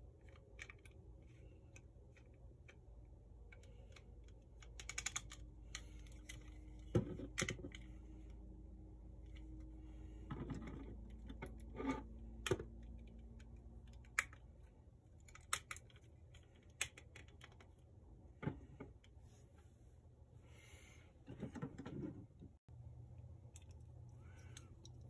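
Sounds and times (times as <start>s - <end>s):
plastic parts clicking: 0.1s - 8.0s, 12.3s - 17.9s.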